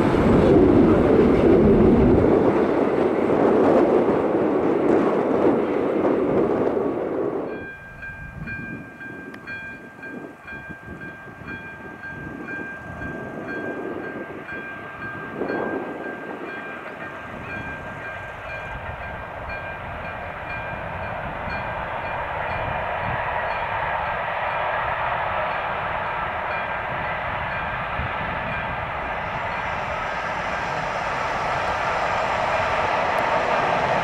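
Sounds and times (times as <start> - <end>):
freight train rumbling: 0.0 - 34.0
high-pitched whine: 17.0 - 34.0.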